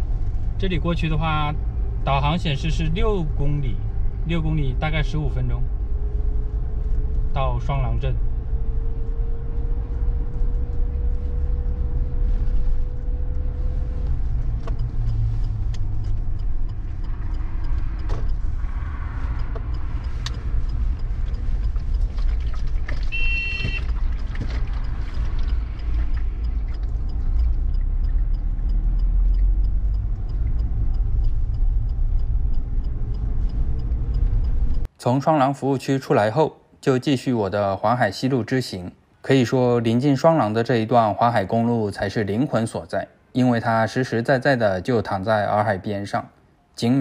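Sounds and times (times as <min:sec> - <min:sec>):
car engine and tyres rumbling: 0:00.0 - 0:47.0
high beeping: 0:23.1 - 0:23.9.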